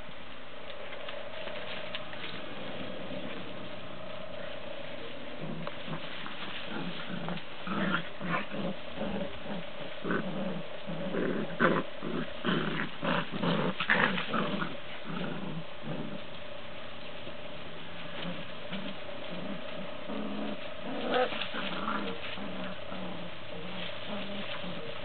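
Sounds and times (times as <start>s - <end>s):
puppies growling: 0.6s - 25.0s.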